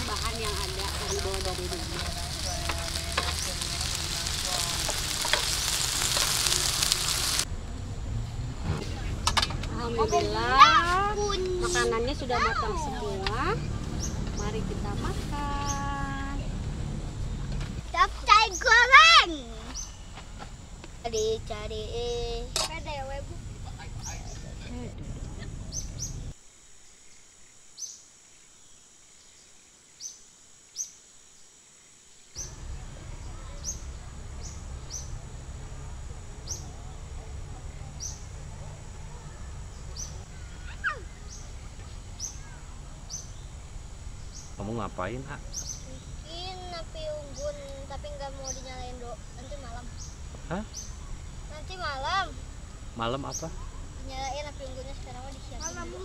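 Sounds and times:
bird chirping: 0.0 - 7.5, 25.4 - 26.3, 36.4 - 46.3
food sizzling in a pan: 0.0 - 7.5
high-pitched insect drone: 0.0 - 8.6, 9.8 - 56.0.

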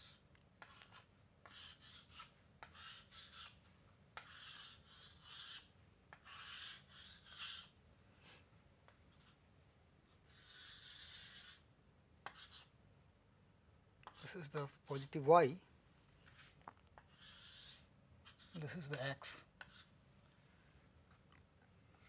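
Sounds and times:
chalk scraping on chalkboard: 0.0 - 3.6, 4.2 - 7.8, 10.1 - 12.7, 16.2 - 19.9
chalk tapping on board: 0.6 - 3.5, 12.2 - 12.7, 18.3 - 19.9.

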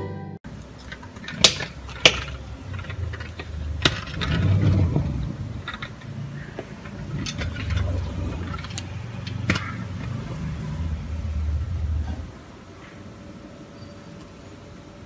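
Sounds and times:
toy truck rolling on table: 0.8 - 12.3.

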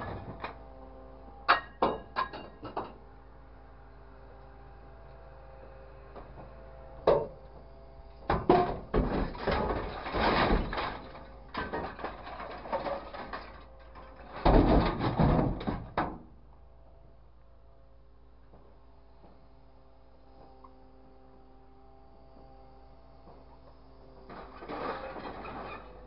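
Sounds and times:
faint steady hum: 0.0 - 26.0
scrap metal clattering into bin: 8.3 - 16.0, 24.3 - 26.0.

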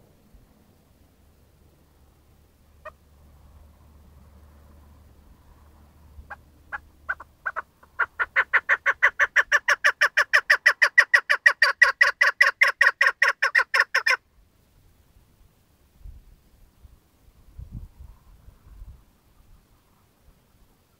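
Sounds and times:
partridge calling: 6.3 - 14.2.

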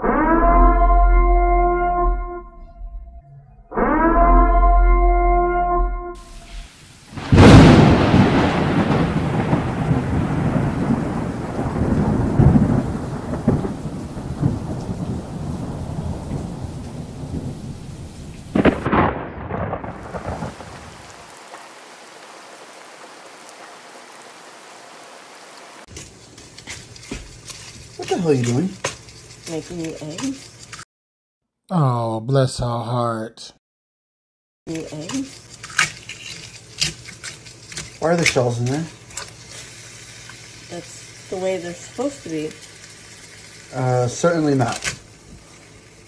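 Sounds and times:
steady rain: 6.2 - 30.8, 37.8 - 46.0
thunder rumbling: 7.1 - 24.2.

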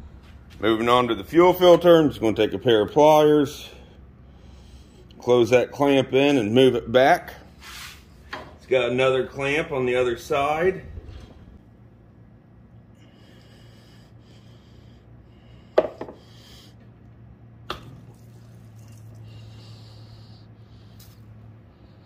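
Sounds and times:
low steady hum: 0.0 - 22.0
soft hissing: 7.6 - 8.2.

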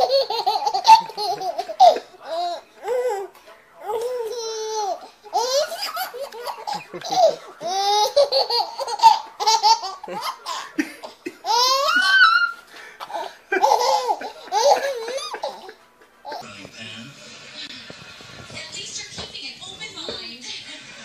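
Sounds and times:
baby laughing: 0.0 - 16.4.

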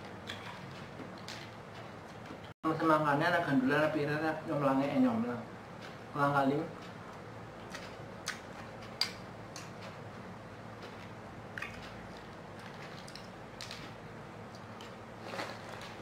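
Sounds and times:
room hum: 0.0 - 16.0.

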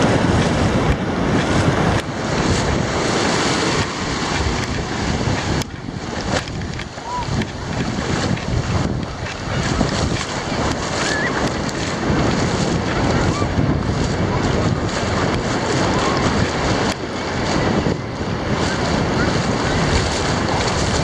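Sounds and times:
ocean surf washing: 0.0 - 21.0
wind buffeting microphone: 0.0 - 21.0.

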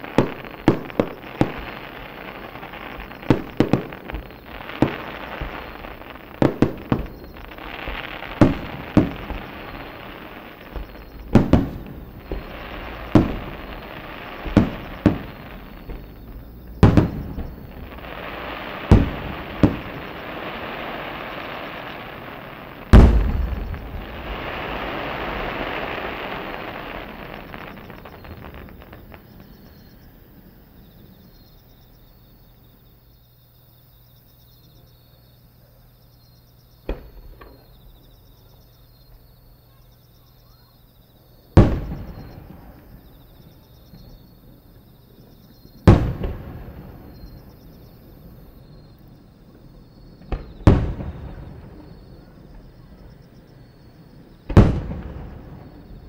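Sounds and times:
firework shells bursting: 0.0 - 30.1
firework hiss: 0.0 - 31.3
loud firework booms: 0.0 - 31.9, 41.5 - 44.2, 45.7 - 56.0
small firework pop: 36.8 - 37.7, 50.2 - 52.7.

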